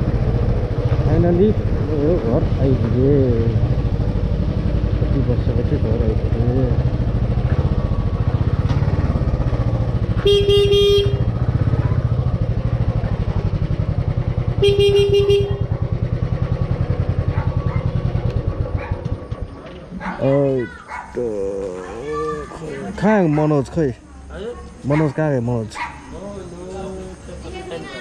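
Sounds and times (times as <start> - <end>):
motorcycle engine idling: 0.0 - 28.0
motorcycle horn blasts: 10.2 - 11.5, 14.5 - 15.9.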